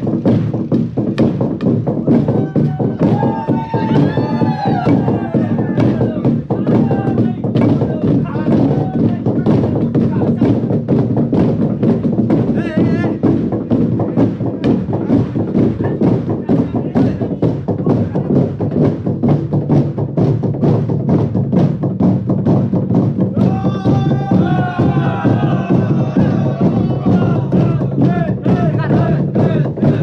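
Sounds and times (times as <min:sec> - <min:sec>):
wooden pestles pounding trough: 0:00.0 - 0:30.0
voices singing together: 0:23.4 - 0:30.0.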